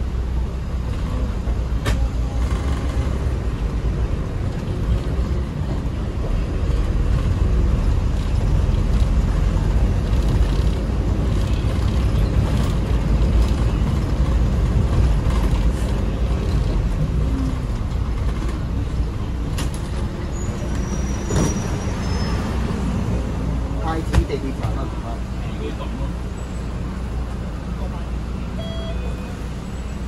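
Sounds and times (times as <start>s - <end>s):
minibus engine and road rumble: 0.0s - 30.0s
faint high squeak: 20.3s - 22.6s.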